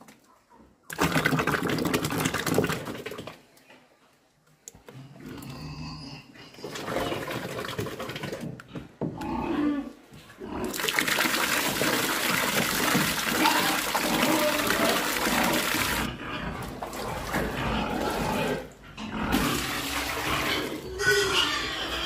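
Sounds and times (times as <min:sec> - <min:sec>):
tap water splashing into bucket: 0:10.6 - 0:16.1.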